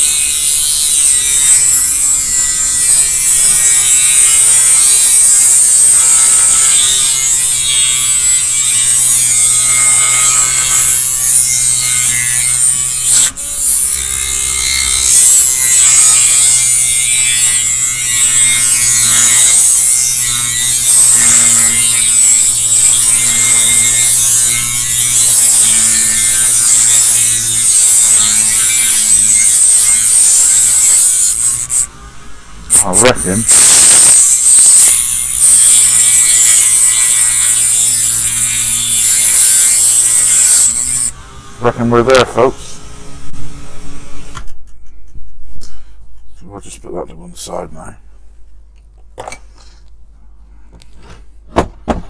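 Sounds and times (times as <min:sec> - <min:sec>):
rotary tool cutting metal: 0:00.0 - 0:31.9, 0:32.7 - 0:41.2.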